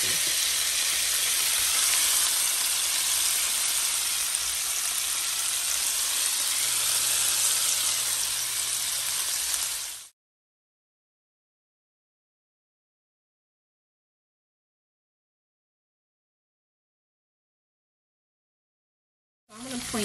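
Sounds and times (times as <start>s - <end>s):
meat sizzling in a frying pan: 0.0s - 10.1s, 19.5s - 20.0s.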